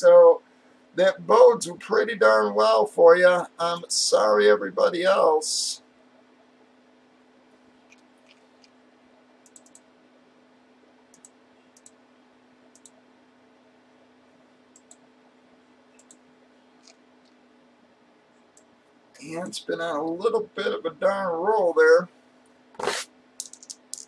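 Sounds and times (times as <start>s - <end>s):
low electrical hum: 0.0s - 24.0s
mouse and keyboard clicks: 9.5s - 9.8s.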